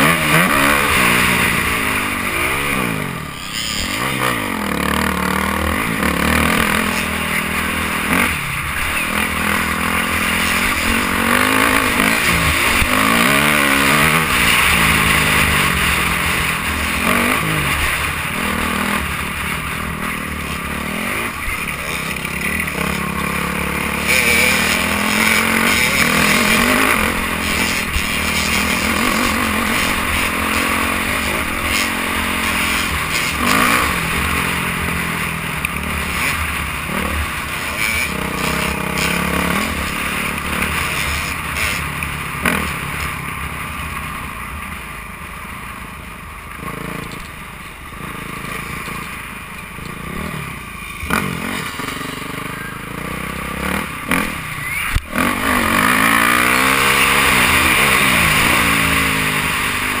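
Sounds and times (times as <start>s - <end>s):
dirt bike engine revving: 0.0s - 43.9s, 47.9s - 60.0s.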